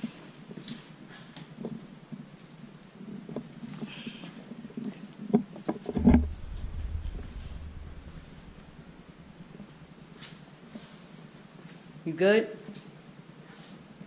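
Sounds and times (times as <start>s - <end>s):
loud knocks: 6.0s - 9.5s
low rumble: 6.0s - 10.1s.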